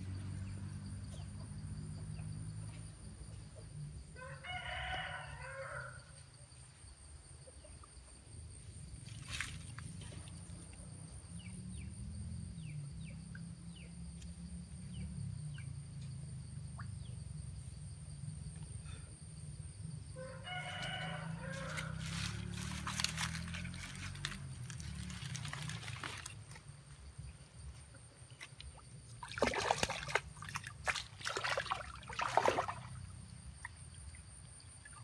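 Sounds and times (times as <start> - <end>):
rooster crowing: 4.2 - 6.1, 20.2 - 23.4.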